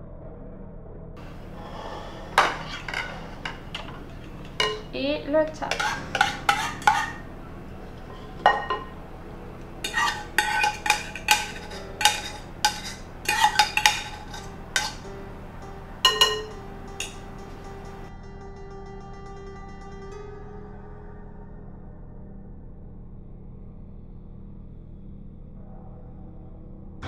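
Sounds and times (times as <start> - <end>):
metal spoon scraping ceramic bowl: 1.2 - 7.3, 8.0 - 9.0, 9.8 - 18.1
soft background music: 1.2 - 22.8.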